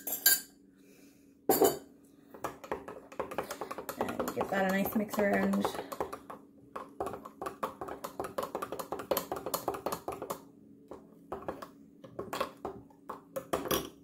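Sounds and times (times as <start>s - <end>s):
whisk clinking against jug: 2.4s - 6.2s, 7.0s - 10.4s.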